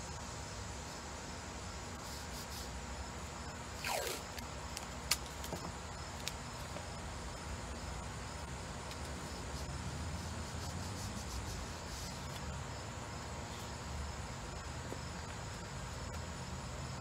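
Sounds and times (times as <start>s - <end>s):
crickets chirring: 0.0s - 17.0s
tape ripped from roll: 3.8s - 6.4s.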